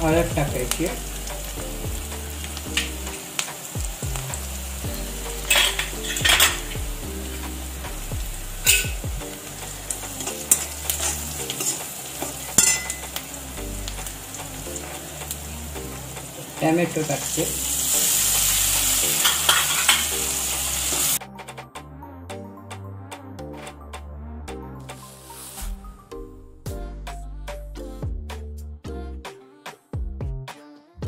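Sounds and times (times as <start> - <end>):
onions sizzling in oil: 0.2 - 21.2
metal spoon scraping pan: 5.5 - 6.7, 10.2 - 13.2, 19.2 - 20.2.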